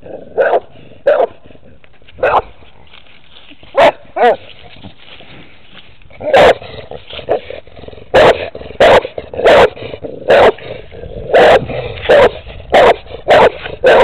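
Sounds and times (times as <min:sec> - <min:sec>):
dog barking: 0:00.4 - 0:01.4, 0:02.2 - 0:02.5, 0:03.7 - 0:04.5, 0:06.2 - 0:06.6, 0:08.1 - 0:10.6, 0:11.3 - 0:14.0.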